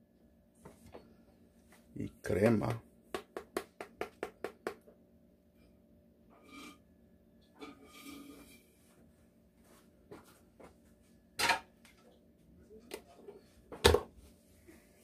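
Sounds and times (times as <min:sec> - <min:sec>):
plastic spoon knocking on bowl: 0:03.1 - 0:04.9.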